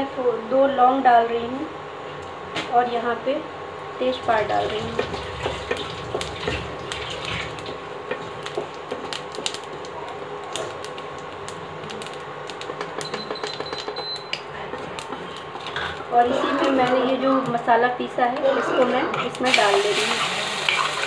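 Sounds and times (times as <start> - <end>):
spices sizzling in hot oil: 4.2 - 17.7, 19.3 - 21.0.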